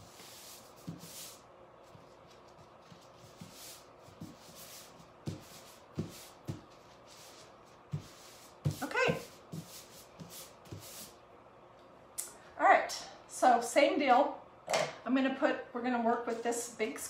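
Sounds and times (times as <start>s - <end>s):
stencil sheet rubbing and rustling: 0.0s - 11.2s.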